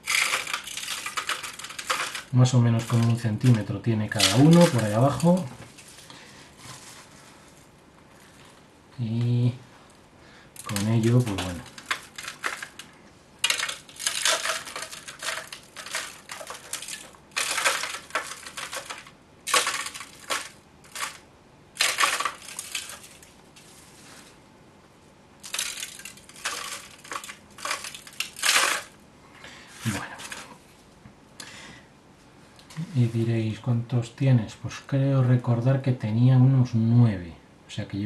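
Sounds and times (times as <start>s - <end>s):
gritty soil rustling: 0.0s - 6.0s, 10.6s - 21.2s.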